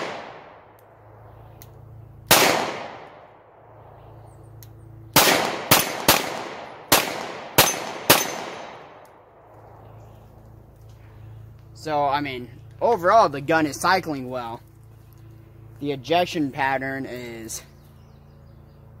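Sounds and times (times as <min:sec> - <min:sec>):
pistol shots with echo: 0:00.0 - 0:00.7, 0:02.3 - 0:03.7, 0:05.1 - 0:09.4.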